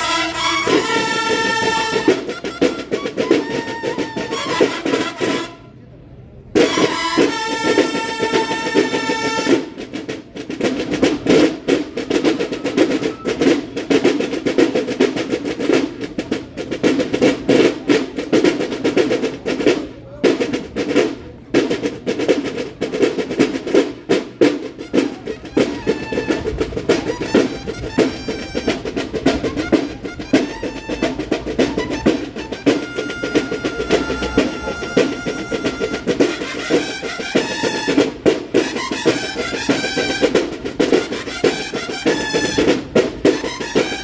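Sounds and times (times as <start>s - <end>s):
bugle chord: 0.0s - 5.6s, 6.6s - 9.6s
snare drum strokes and rolls: 0.0s - 5.8s, 6.5s - 44.0s.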